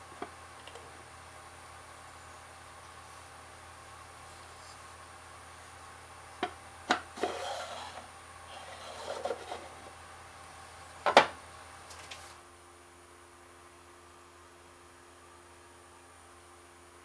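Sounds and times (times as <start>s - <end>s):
wooden lid sliding in grooves: 7.2s - 9.9s.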